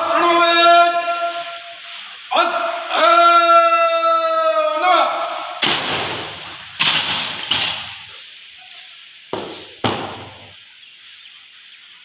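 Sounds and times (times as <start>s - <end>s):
boots stamping on concrete: 9.3s - 10.5s.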